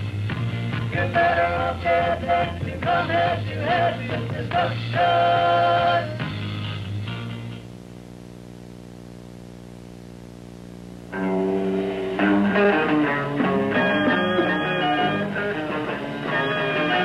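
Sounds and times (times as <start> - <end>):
garage rock band playing: 0.0 - 7.6, 11.2 - 17.0
held guitar chord ringing: 11.1 - 17.0.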